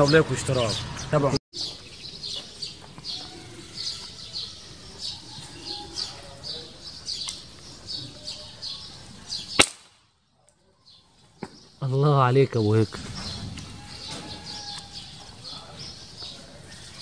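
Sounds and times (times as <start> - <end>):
small birds chirping: 0.0 - 17.0
rifle shot: 9.6 - 10.0.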